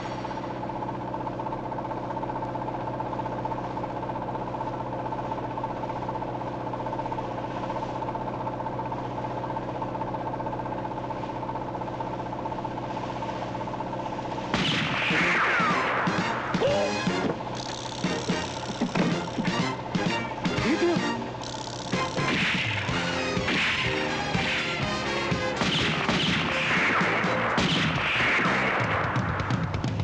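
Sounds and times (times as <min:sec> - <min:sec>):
boat engine droning: 0:00.0 - 0:29.5
sudden loud burst: 0:14.5 - 0:17.1.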